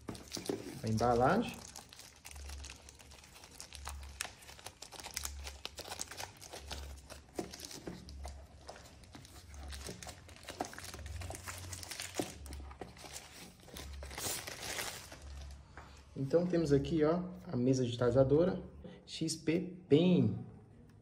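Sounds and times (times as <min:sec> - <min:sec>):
plastic sleeve crinkling: 0:00.0 - 0:15.7.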